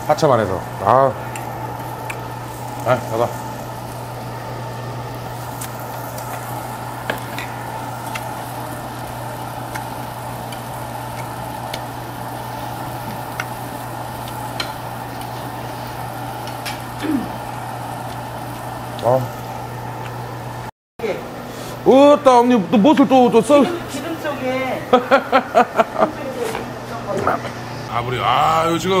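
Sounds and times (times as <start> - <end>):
meat sizzling on a grill: 0.0 - 20.7
constant low hum: 0.0 - 21.8
low grunt: 17.0 - 17.4.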